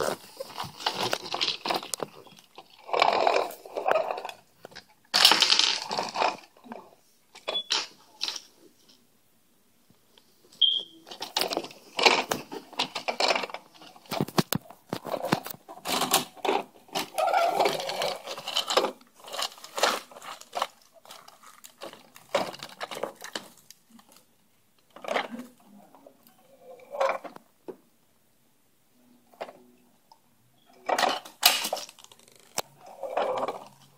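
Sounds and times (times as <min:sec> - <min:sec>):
toy loader clattering through blocks: 0:00.0 - 0:06.7, 0:11.1 - 0:23.5, 0:30.8 - 0:33.9.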